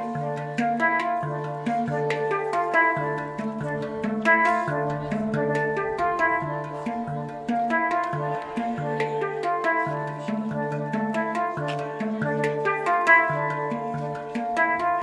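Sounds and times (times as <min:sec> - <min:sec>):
handpan played with fingers: 0:00.0 - 0:15.0.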